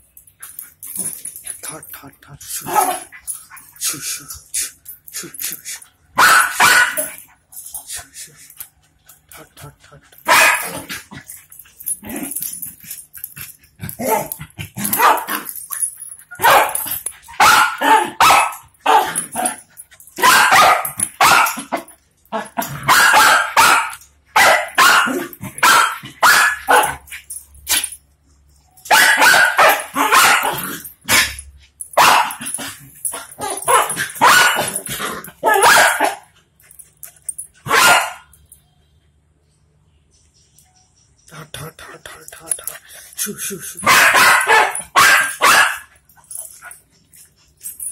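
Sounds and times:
dogs barking: 6.2 - 7.2, 10.2 - 11.1, 13.9 - 15.6, 16.3 - 27.9, 28.8 - 36.4, 37.6 - 38.3, 43.8 - 46.8.

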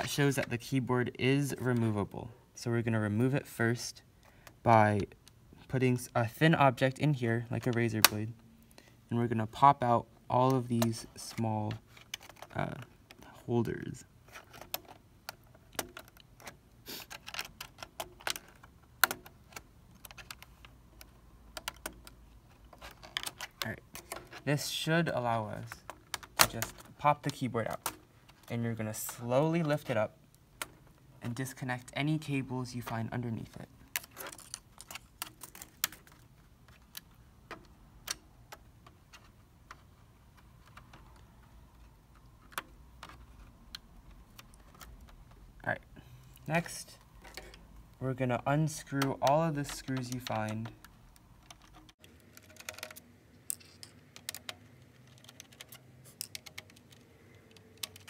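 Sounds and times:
fingers clicking laptop parts: 11.7 - 13.2, 14.3 - 24.5, 25.6 - 28.5, 33.8 - 45.5, 48.6 - 58.0.

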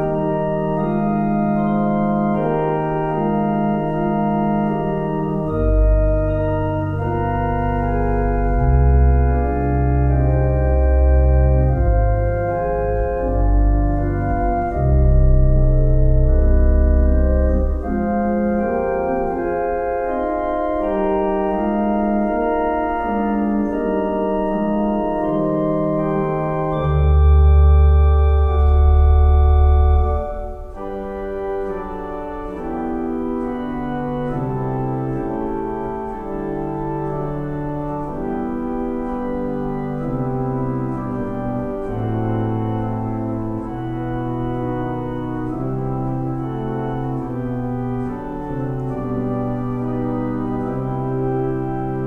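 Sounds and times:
church organ chords: 0.0 - 52.0
deep organ pedal bass note: 0.0 - 52.0.

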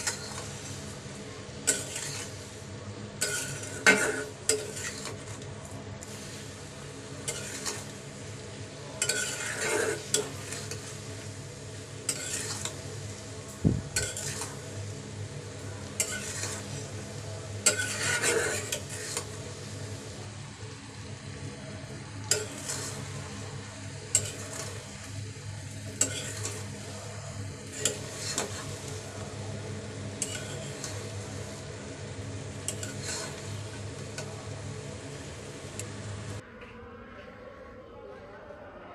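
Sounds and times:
syrup bubbling and sizzling: 0.0 - 36.4
spatula scraping iron pan: 1.6 - 2.4, 3.2 - 5.4, 7.2 - 7.9, 9.0 - 10.9, 12.1 - 12.8, 14.0 - 14.6, 16.0 - 16.8, 17.6 - 19.3, 26.0 - 26.7, 30.2 - 31.0, 32.7 - 33.4.

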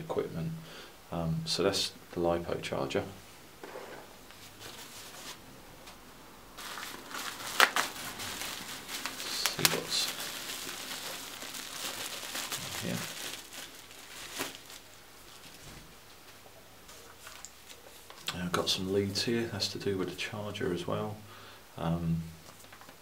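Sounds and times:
sharp crackles: 6.6 - 15.7
bubble wrap crinkling: 6.6 - 16.3, 16.9 - 18.3.

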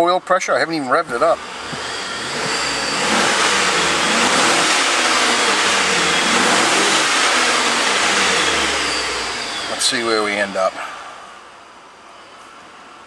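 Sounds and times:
car engine revving: 0.8 - 11.2.

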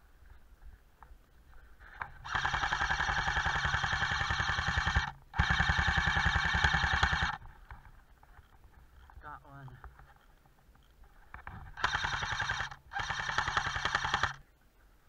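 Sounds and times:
airsoft rifle full-auto bursts: 2.0 - 7.4, 11.7 - 14.4.

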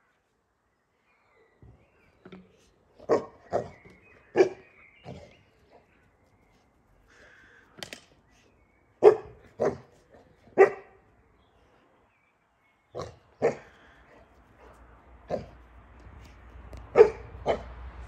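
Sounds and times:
puppy barking sharply: 9.0 - 9.8, 16.9 - 17.7.

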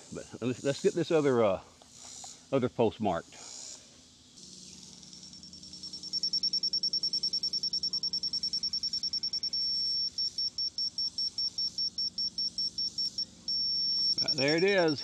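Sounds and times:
laser receiver beeping: 5.0 - 15.0.

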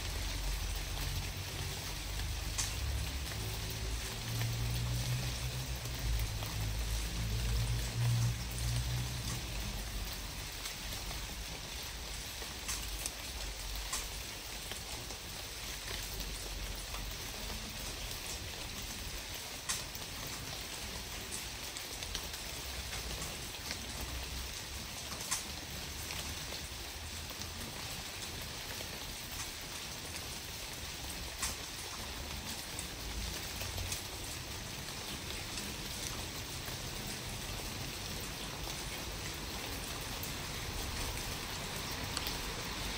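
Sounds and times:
raindrop ticks: 0.0 - 42.9
steady rain falling: 0.0 - 42.9.

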